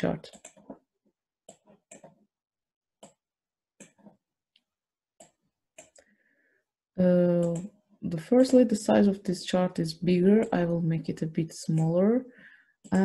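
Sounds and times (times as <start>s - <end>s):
computer mouse clicks: 0.3s - 0.8s, 1.5s - 2.2s, 3.0s - 3.2s, 3.8s - 6.1s, 7.4s - 7.8s, 8.4s - 8.6s, 10.3s - 10.8s, 11.7s - 12.1s.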